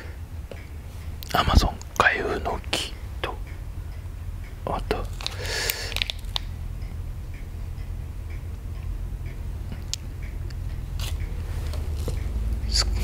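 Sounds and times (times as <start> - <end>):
faint regular ticking: 0.0 - 13.0
low steady hum: 0.0 - 13.0
sharp clicks: 5.0 - 6.6, 9.7 - 11.3.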